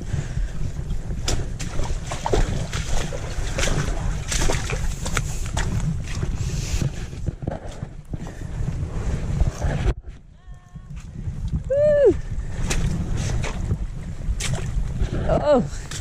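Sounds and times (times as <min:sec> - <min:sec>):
low microphone rumble: 0:00.0 - 0:16.0
stream water running: 0:01.2 - 0:06.9.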